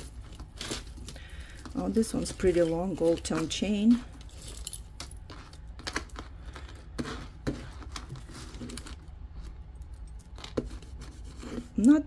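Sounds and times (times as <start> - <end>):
metal chain links clicking and rattling: 1.0 - 5.6.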